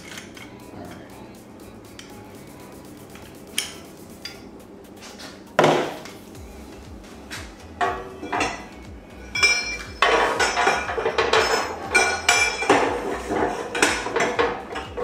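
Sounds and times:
metal parts clanking and clinking: 0:00.0 - 0:01.1, 0:07.8 - 0:08.7, 0:09.3 - 0:15.0.

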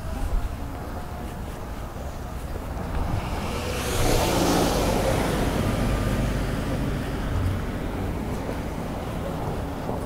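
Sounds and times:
minivan driving past: 0:02.8 - 0:10.0.

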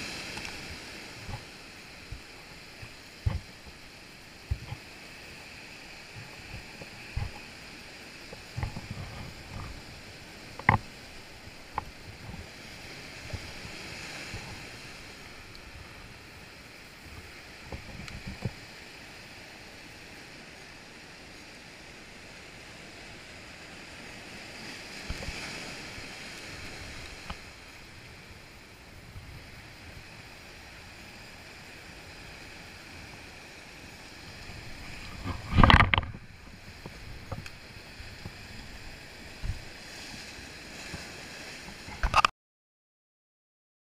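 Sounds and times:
surf washing over rocks: 0:00.0 - 0:42.3
fishing line clicks and knocks: 0:35.3 - 0:36.2.

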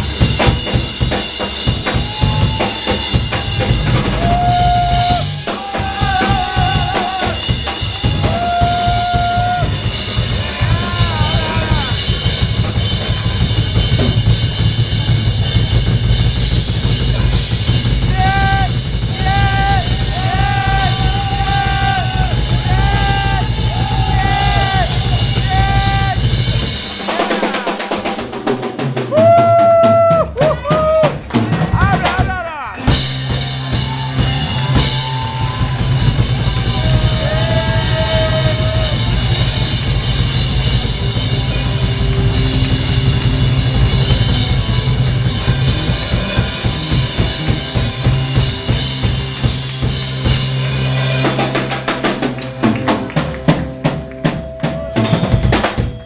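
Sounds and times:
bass guitar: 0:00.0 - 0:56.0
drum kit: 0:00.0 - 0:56.0
electric guitars: 0:32.9 - 0:56.0.

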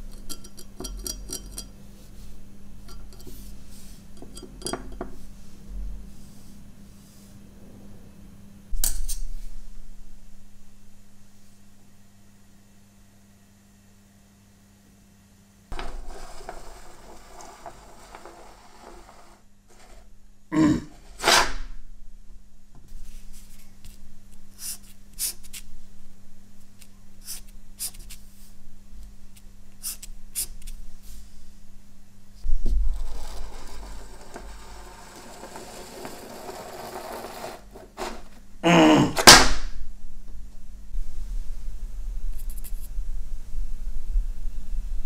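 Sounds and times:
low electrical hum: 0:00.0 - 0:45.0
paper rustling scrapes: 0:15.7 - 0:20.1, 0:21.0 - 0:21.7, 0:32.8 - 0:38.4
marker strokes on paper: 0:24.6 - 0:25.6, 0:27.2 - 0:28.6, 0:29.8 - 0:30.8.

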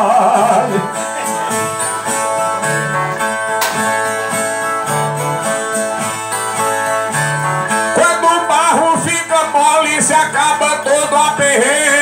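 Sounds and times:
strummed violas: 0:00.0 - 0:12.0.

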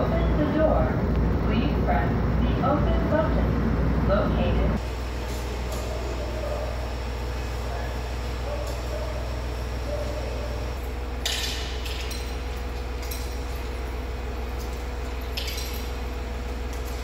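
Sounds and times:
low hum of station concourse: 0:00.0 - 0:17.0
short clinks and rustles: 0:10.8 - 0:17.0.

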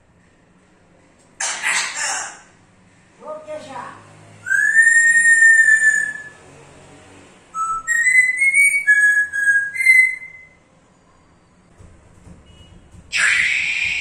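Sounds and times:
parrot whistling: 0:04.4 - 0:06.4, 0:07.6 - 0:10.6, 0:13.2 - 0:14.0.

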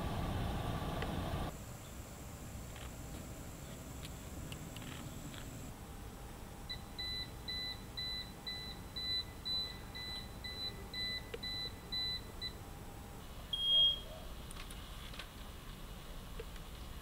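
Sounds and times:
electronic warning beeper: 0:06.7 - 0:12.6, 0:13.5 - 0:14.1
long high beep: 0:06.7 - 0:12.6, 0:13.6 - 0:14.1.

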